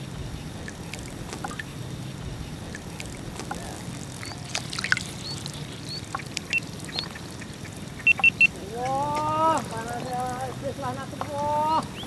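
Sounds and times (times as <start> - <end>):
steady low rumble: 0.0 - 11.2
small water splashes and drips: 0.4 - 12.0
short high chirps: 8.0 - 8.5.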